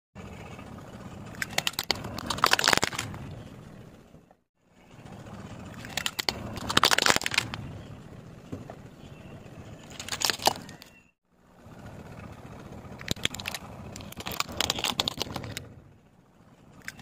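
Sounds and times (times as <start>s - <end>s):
low steady rumble: 0.2s - 17.0s
plastic toys cracking under tyre: 1.4s - 3.2s, 5.8s - 7.6s, 9.9s - 11.0s, 13.0s - 15.6s.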